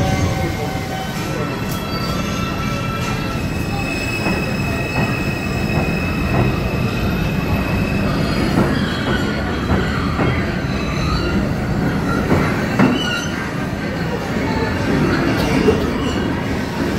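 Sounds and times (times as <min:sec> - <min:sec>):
high wheel squeal: 0:00.0 - 0:13.6
subway train rumbling: 0:00.0 - 0:16.9.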